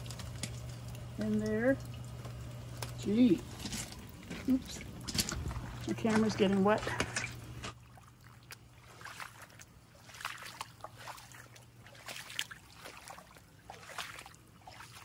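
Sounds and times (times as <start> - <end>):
boots sloshing through water: 3.4 - 15.0.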